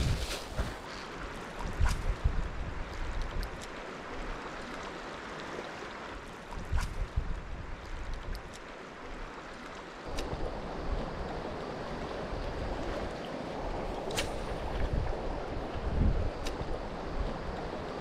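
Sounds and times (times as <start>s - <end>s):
wind buffeting microphone: 0.0s - 0.8s, 1.6s - 3.6s, 10.1s - 18.0s
flowing river water: 0.0s - 18.0s.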